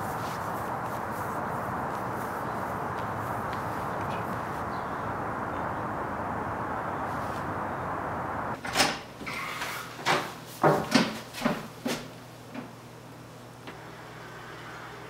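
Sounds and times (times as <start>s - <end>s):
outdoor background noise: 0.0s - 15.0s
door opening and closing: 8.6s - 9.5s.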